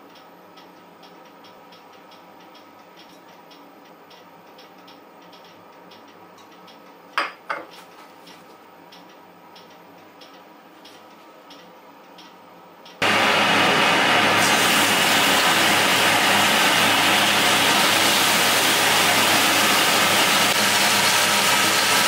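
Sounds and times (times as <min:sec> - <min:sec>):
faint regular ticking: 0:00.0 - 0:07.2, 0:08.2 - 0:13.0.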